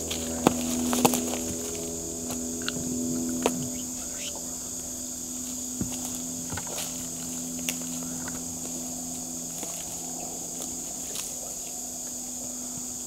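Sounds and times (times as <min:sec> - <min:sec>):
faint low hum: 0:00.0 - 0:13.0
footsteps in undergrowth: 0:00.0 - 0:13.0
insect chorus droning: 0:00.0 - 0:13.0
rustles and twig snaps: 0:09.5 - 0:12.2.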